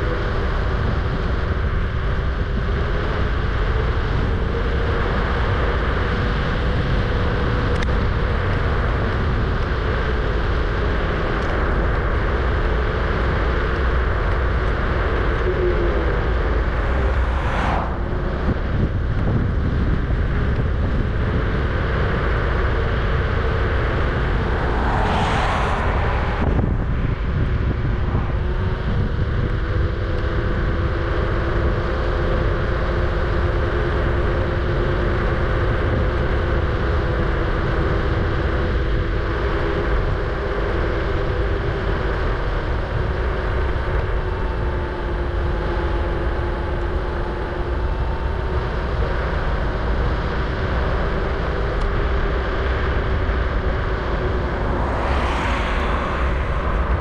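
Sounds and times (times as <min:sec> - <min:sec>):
wind and road rumble: 0:00.0 - 0:57.0
whooshes: 0:16.7 - 0:18.8, 0:23.9 - 0:28.9, 0:54.1 - 0:57.0.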